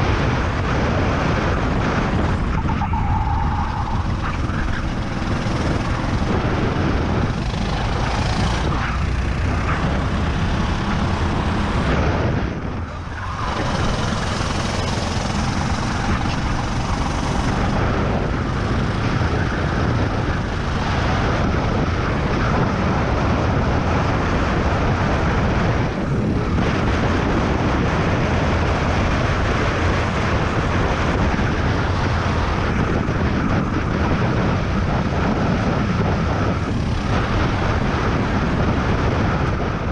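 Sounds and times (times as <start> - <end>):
rush of air: 0.0 - 22.9
kart engine running hard: 0.0 - 39.9.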